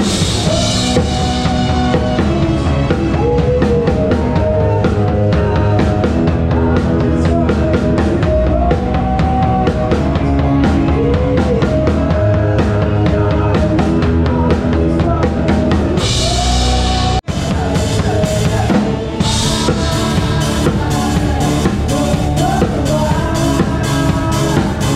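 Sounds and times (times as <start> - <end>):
live band playing: 0.0 - 24.9.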